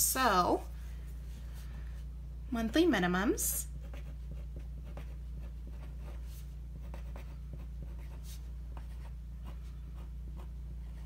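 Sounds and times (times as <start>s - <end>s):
steady low hum: 0.0s - 11.0s
pen scratching on paper: 3.8s - 11.0s.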